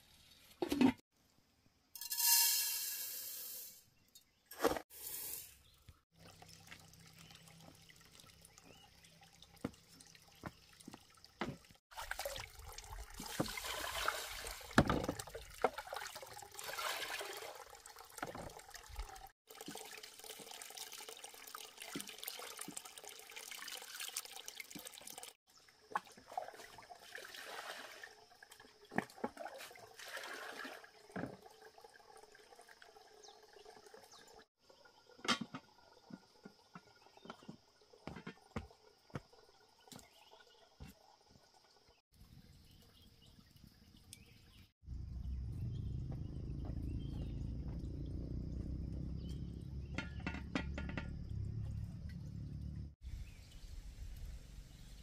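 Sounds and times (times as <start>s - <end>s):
water pouring into metal pot: 6.2s - 38.9s
rice washed by hand splashing: 10.4s - 31.0s.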